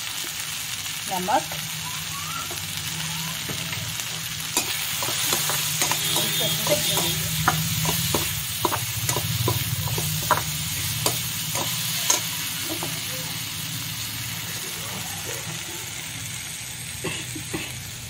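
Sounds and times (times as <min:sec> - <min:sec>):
light frying sizzle: 0:00.0 - 0:18.0
metal spatula scraping a pan: 0:04.5 - 0:13.0.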